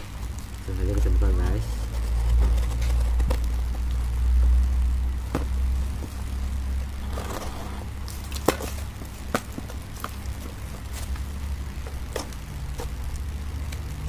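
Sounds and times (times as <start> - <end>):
plastic packaging crinkling: 7.8 - 13.9.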